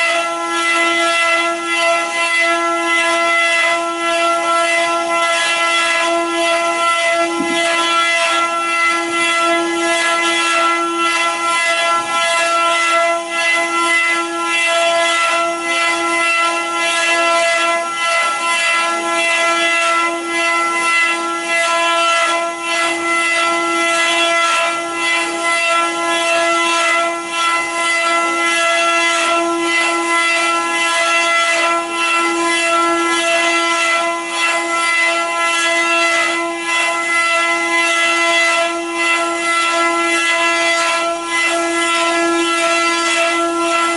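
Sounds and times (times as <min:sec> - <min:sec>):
bits cutting wood: 0:00.0 - 0:21.1
router spindles whining: 0:00.0 - 0:43.9.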